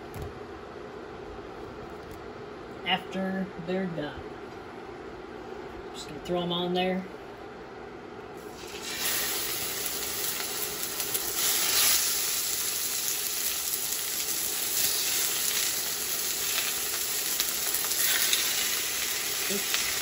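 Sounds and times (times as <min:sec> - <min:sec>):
pork chops sizzling in skillet: 0:08.4 - 0:20.0.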